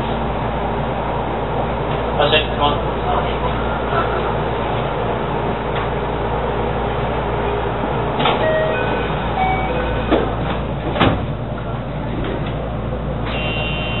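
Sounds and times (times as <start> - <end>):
train equipment humming: 0.0 - 14.0
short tones: 13.3 - 14.0.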